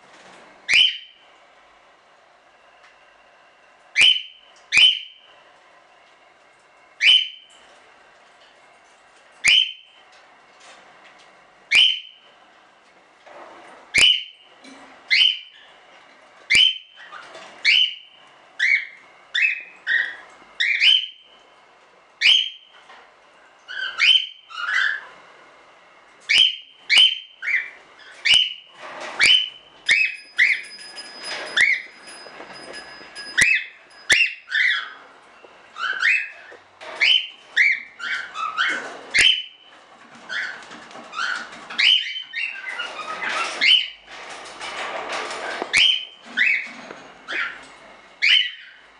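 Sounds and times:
cockatiels whistling calls: 0.7s - 1.2s, 4.0s - 5.2s, 7.0s - 7.5s, 9.4s - 9.9s, 11.7s - 12.2s, 14.0s - 14.4s, 15.1s - 15.7s, 16.5s - 21.3s, 22.2s - 22.8s, 23.7s - 25.1s, 26.3s - 30.6s, 33.4s - 35.0s, 35.7s - 44.0s, 45.7s - 46.7s, 47.3s - 48.8s.

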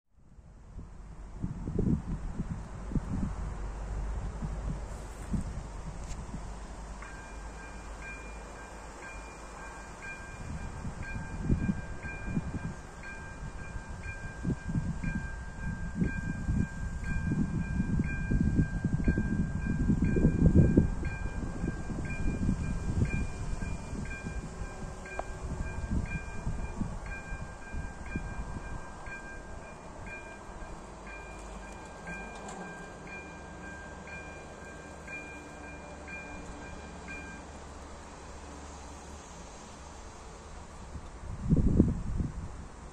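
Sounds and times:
level crossing warning bell: 7.0s - 37.5s.

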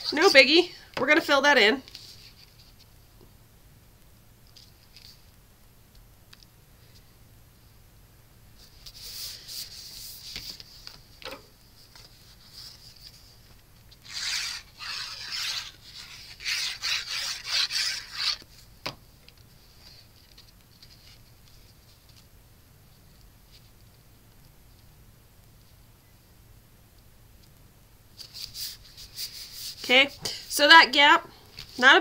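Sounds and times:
cardstock rustling by hand: 8.6s - 22.3s.

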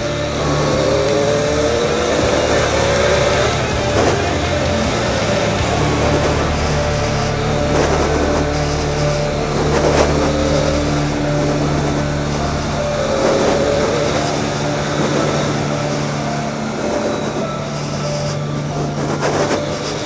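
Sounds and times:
motorcycle engine running: 0.0s - 20.0s
wind and tyre noise: 0.0s - 20.0s.

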